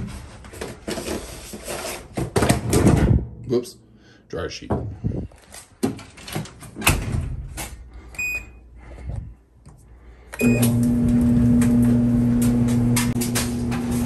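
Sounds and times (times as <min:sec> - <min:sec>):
clothes dryer humming: 0:10.2 - 0:14.0.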